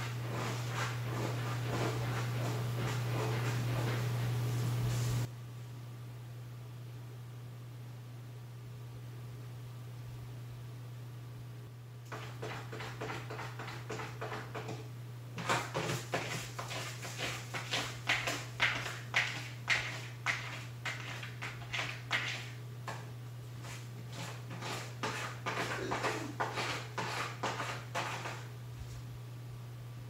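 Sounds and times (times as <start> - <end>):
cat scratching in litter: 0.0 - 4.4, 12.1 - 14.8, 15.4 - 28.5.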